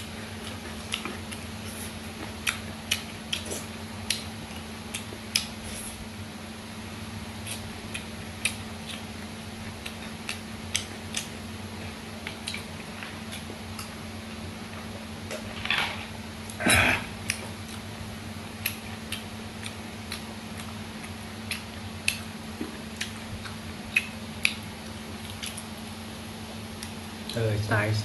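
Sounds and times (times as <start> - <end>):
wet chewing smacks: 0.4 - 5.8, 12.2 - 14.0, 18.6 - 25.8.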